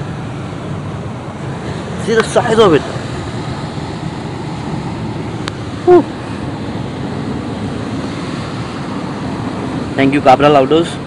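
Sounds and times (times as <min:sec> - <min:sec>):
rushing outdoor noise: 0:00.0 - 0:11.0
short falling vocal sound: 0:05.8 - 0:06.1.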